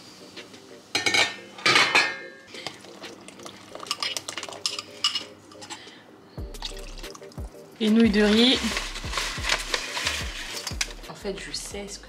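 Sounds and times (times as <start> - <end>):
utensil scraping against a pot: 8.2 - 11.0.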